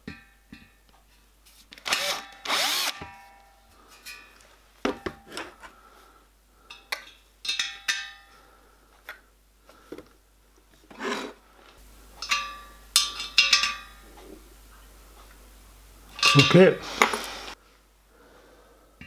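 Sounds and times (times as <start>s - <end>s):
metal bracket clinking on metal: 12.2s - 14.0s, 16.1s - 16.7s.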